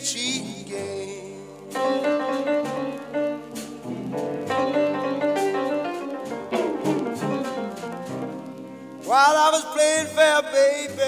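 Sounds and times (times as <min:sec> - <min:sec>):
instrumental piano music with beat: 0:00.0 - 0:11.0.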